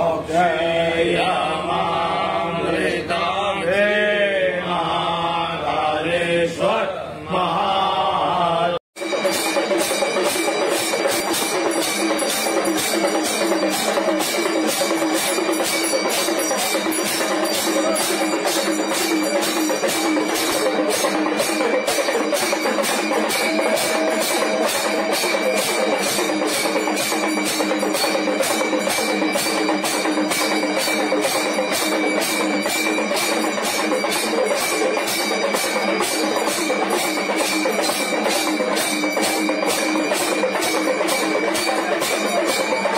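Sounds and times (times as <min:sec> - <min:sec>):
bells and metal percussion: 0:09.0 - 0:42.9
dense continuous ringing: 0:09.0 - 0:42.9.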